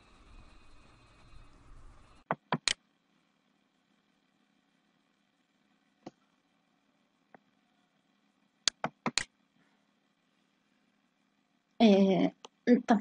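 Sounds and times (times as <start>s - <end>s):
computer mouse clicks: 2.3s - 2.8s, 8.7s - 9.3s.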